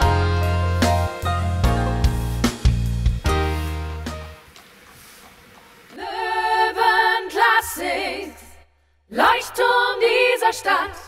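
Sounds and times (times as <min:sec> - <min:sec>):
voices singing a song: 0:06.0 - 0:11.0.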